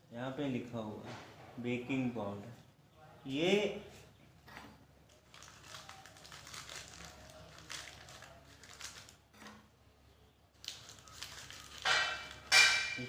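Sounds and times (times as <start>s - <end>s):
plastic wrapping crinkling: 5.1s - 9.3s, 10.5s - 13.0s.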